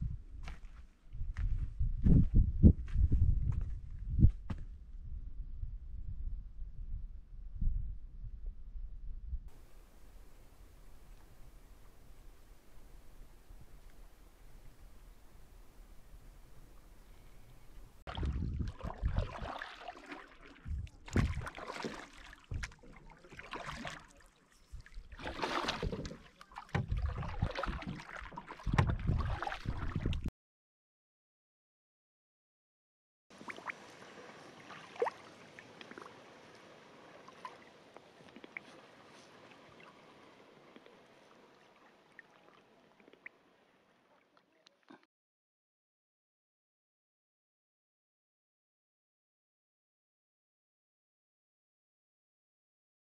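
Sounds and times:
wind buffeting microphone: 0:00.0 - 0:15.2, 0:17.6 - 0:19.4, 0:20.6 - 0:21.5, 0:26.8 - 0:28.0, 0:28.6 - 0:30.3
paddle splashing water: 0:18.0 - 0:30.2, 0:33.3 - 0:45.0
water drips and knocks: 0:20.6 - 0:24.1, 0:25.2 - 0:30.2.

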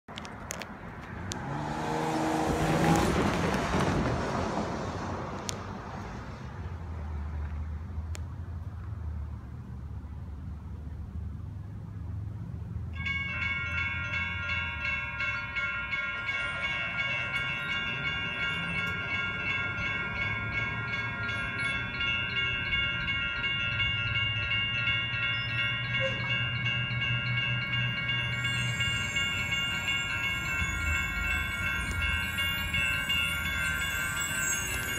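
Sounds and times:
railroad crossing bells ringing: 0:12.7 - 0:34.9.

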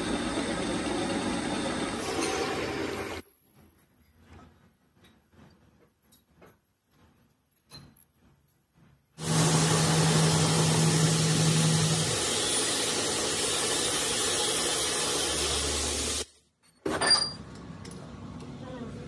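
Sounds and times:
metal lathe whirring: 0:00.0 - 0:03.2, 0:09.2 - 0:16.2.

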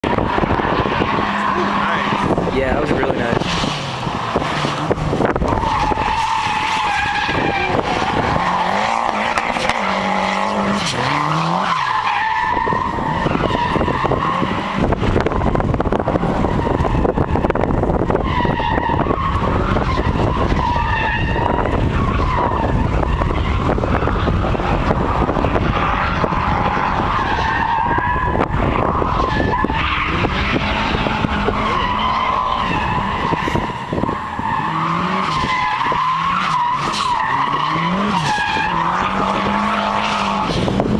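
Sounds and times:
car engine revving: 0:00.0 - 0:40.9
tyres squealing: 0:00.3 - 0:14.8, 0:25.7 - 0:40.6.

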